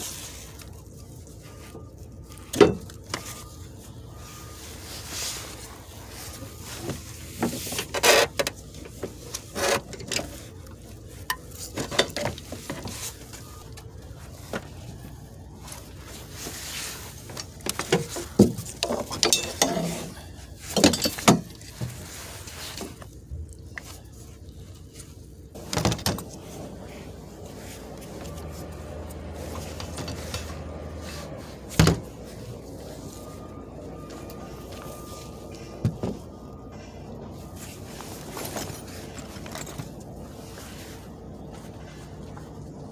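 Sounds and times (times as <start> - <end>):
metal clanking and scraping: 6.6 - 10.5, 11.2 - 13.0, 17.3 - 22.1.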